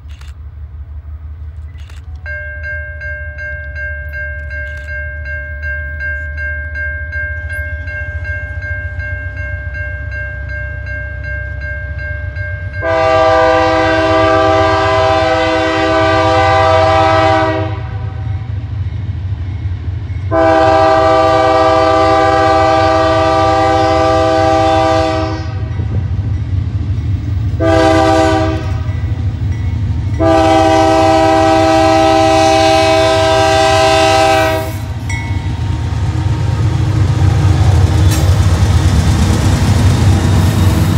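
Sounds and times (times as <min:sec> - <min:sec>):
crossing bell ringing: 0:01.8 - 0:14.8, 0:18.1 - 0:38.2
diesel engines rumbling: 0:11.9 - 0:40.9
locomotive air horn blasts: 0:12.8 - 0:18.3, 0:20.3 - 0:25.7, 0:27.6 - 0:29.0, 0:30.2 - 0:35.0.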